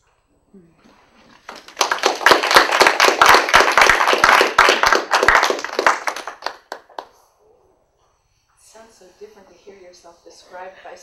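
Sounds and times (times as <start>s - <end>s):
small audience applauding: 1.3s - 7.2s.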